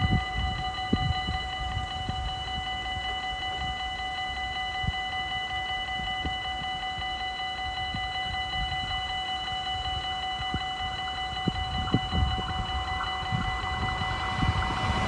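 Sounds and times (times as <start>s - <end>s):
low rumble: 11.2s - 15.0s.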